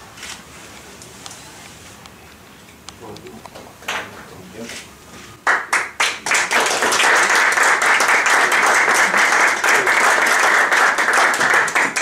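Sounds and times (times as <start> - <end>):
small group applauding: 5.4 - 12.0.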